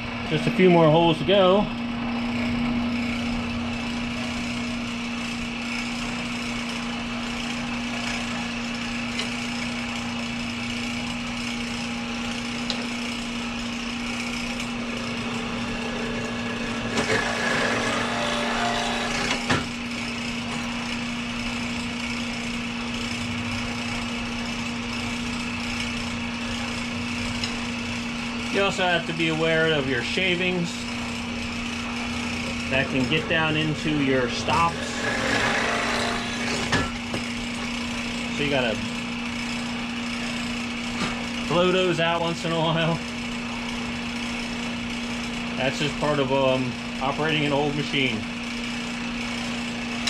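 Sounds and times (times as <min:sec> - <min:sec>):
drilling machine motor humming: 0:00.0 - 0:50.0
rough cutting sound: 0:14.2 - 0:19.7, 0:30.9 - 0:37.1.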